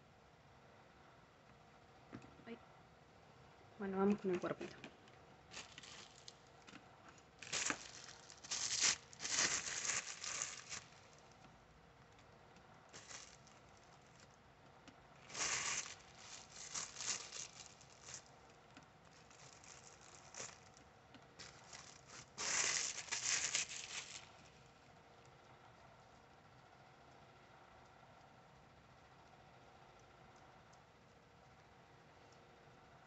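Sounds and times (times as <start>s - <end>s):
plastic crinkling and rustling: 5.5s - 11.5s, 12.9s - 14.3s, 15.2s - 20.8s, 21.4s - 24.5s.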